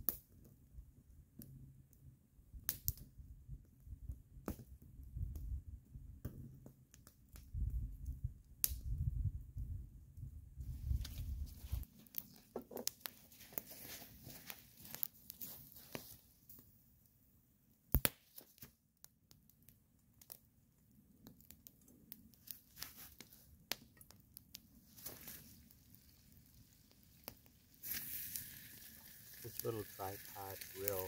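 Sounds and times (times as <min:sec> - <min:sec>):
campfire crackling and popping: 0:00.0 - 0:31.0.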